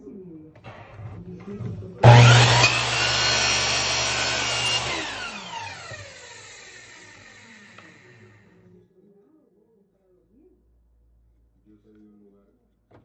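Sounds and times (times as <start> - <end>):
miter saw cutting wood: 2.0 - 8.5.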